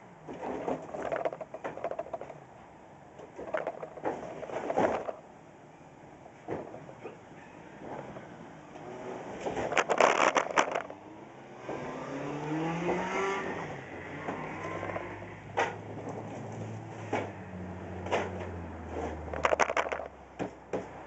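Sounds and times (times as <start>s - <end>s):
vehicle engine rising in pitch: 11.4s - 15.4s.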